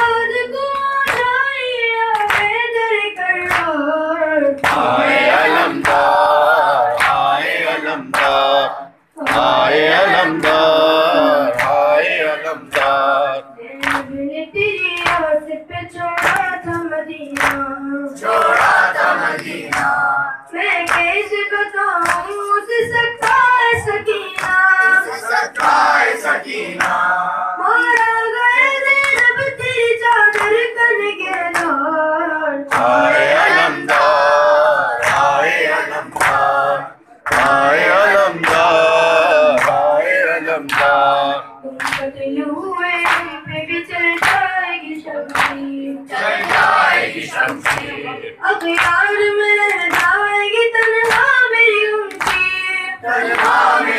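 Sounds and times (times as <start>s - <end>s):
boy chanting with vibrato: 3.3s - 13.8s
voices chanting together: 4.6s - 13.6s, 18.2s - 20.4s, 24.2s - 27.6s, 32.7s - 41.9s, 46.0s - 48.4s, 53.0s - 53.9s.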